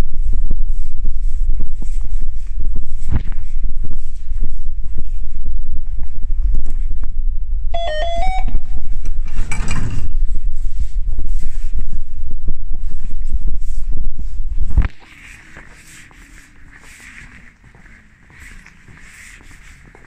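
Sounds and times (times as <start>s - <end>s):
walking and handling noise: 0.0s - 20.0s
card reader beep: 7.8s - 8.6s.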